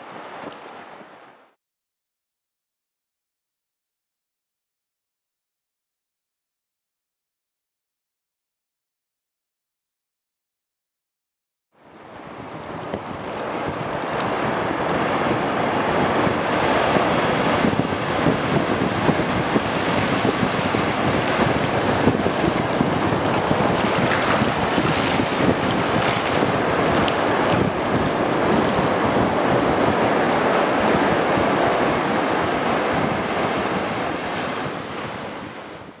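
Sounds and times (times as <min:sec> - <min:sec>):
ocean waves breaking: 0:11.9 - 0:35.8.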